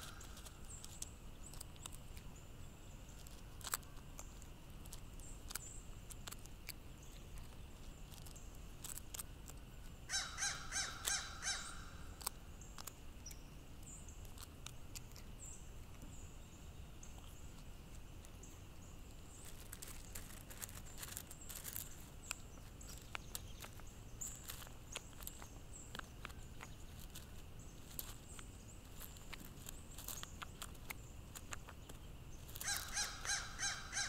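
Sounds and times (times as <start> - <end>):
bill pecking on gravel: 0.0 - 34.0
crow cawing: 10.1 - 12.0, 32.6 - 34.0.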